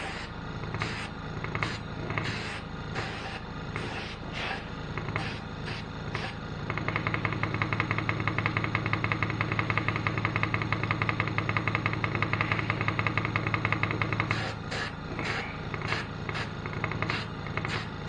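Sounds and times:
paint sprayer motor pulsing: 0:00.0 - 0:18.0.

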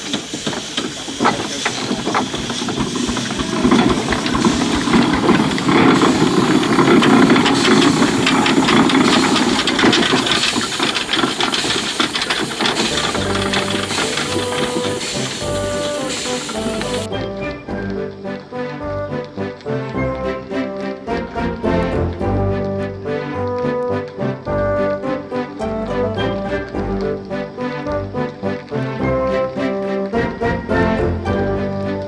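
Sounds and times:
steam engine driving past: 0:00.0 - 0:32.0
music: 0:12.8 - 0:32.0.

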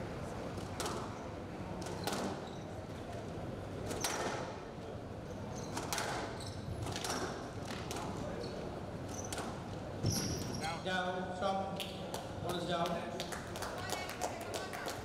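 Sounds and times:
shoes squeaking on court floor: 0:01.8 - 0:02.8, 0:05.3 - 0:07.4, 0:08.3 - 0:10.7.

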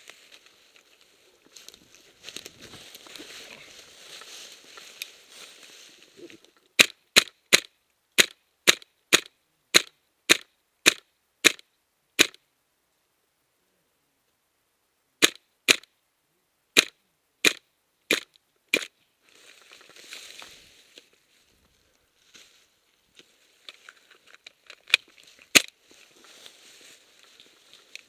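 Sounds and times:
gear and dry leaves rustling: 0:00.0 - 0:06.8, 0:18.2 - 0:28.0
airsoft rifle shots: 0:06.8 - 0:11.6, 0:12.2 - 0:12.4, 0:15.2 - 0:15.9, 0:16.8 - 0:18.9.

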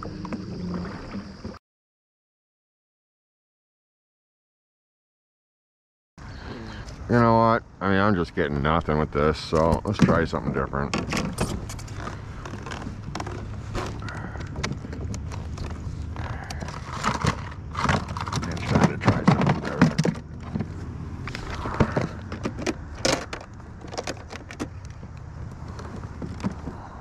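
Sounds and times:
rattling plastic tackle box: 0:09.7 - 0:26.9.

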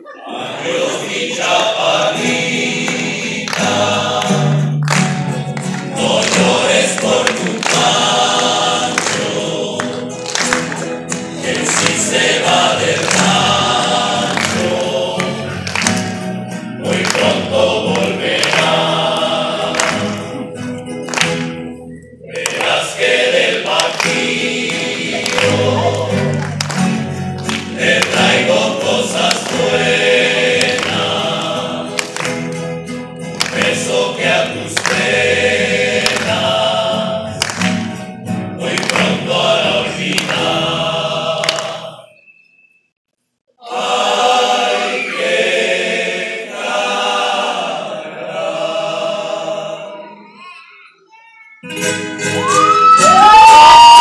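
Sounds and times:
men singing in harmony: 0:00.2 - 0:04.8, 0:05.9 - 0:10.2, 0:11.3 - 0:15.7, 0:16.5 - 0:20.6, 0:22.3 - 0:26.4, 0:27.7 - 0:32.2, 0:33.4 - 0:37.4, 0:38.6 - 0:42.2, 0:43.6 - 0:49.9
strummed acoustic guitars: 0:00.2 - 0:42.1, 0:51.6 - 0:53.5.

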